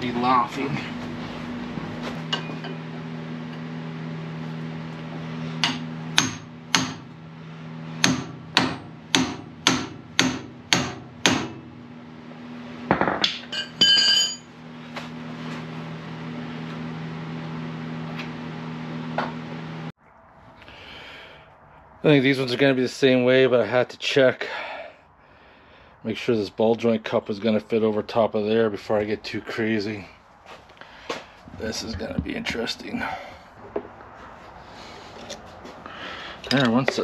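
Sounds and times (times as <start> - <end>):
steady low hum: 0.0 - 37.0
hammer striking steel: 5.6 - 7.1, 8.0 - 11.6
metal clinking and ringing: 13.4 - 14.5.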